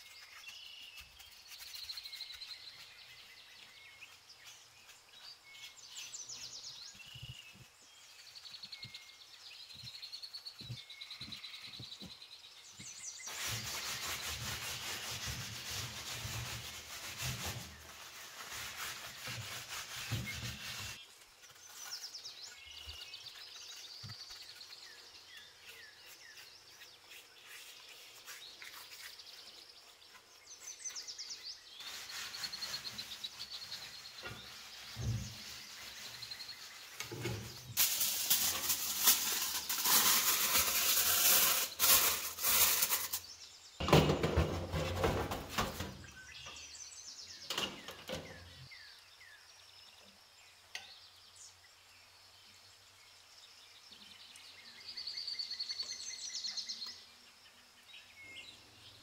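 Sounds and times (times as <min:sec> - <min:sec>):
birds chirping faintly: 0:00.0 - 0:59.0
brush scrubbing cast iron: 0:12.8 - 0:43.3.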